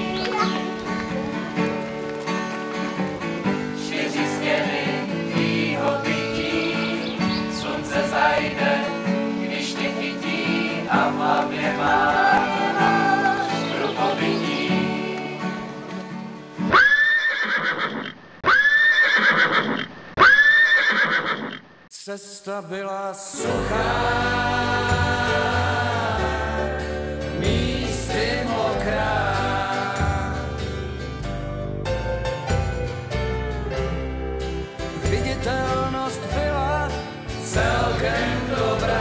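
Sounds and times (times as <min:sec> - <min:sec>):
horse whinnying: 0:16.7 - 0:21.6
instrumental music: 0:23.4 - 0:39.0.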